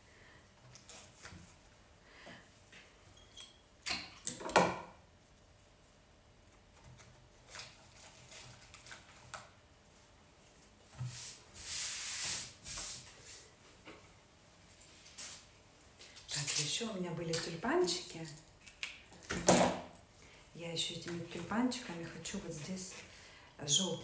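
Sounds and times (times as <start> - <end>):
rustle of florist materials: 6.7 - 13.7.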